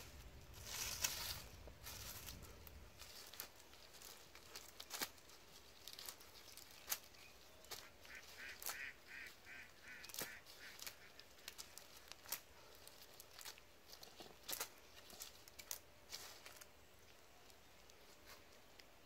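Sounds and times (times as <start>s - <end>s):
net rustling on dry leaves: 0.0s - 18.8s
bird nasal calls: 7.2s - 11.8s.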